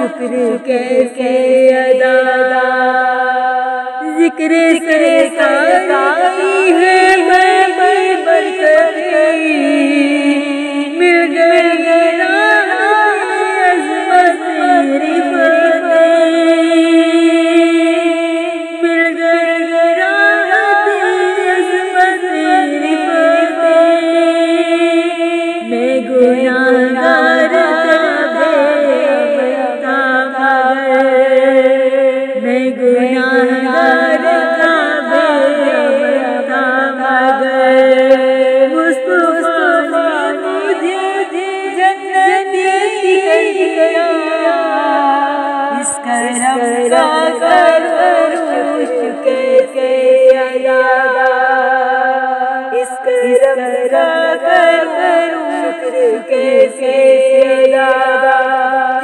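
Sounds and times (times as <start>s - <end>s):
woman singing: 0.0s - 59.0s
voices singing in harmony: 24.3s - 31.6s, 32.4s - 59.0s.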